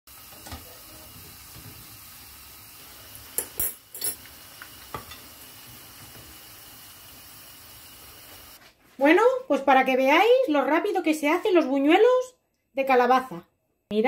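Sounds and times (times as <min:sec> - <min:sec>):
fritters sizzling in hot oil: 0:00.1 - 0:08.6.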